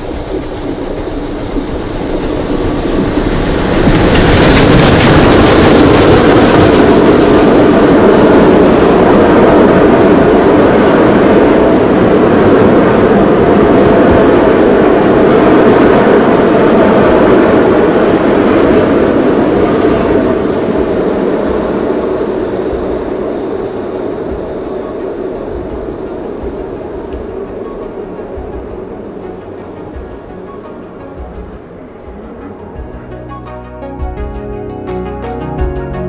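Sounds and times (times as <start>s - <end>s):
steam locomotive passing: 0.0s - 36.0s
train coaches rolling past: 0.0s - 36.0s.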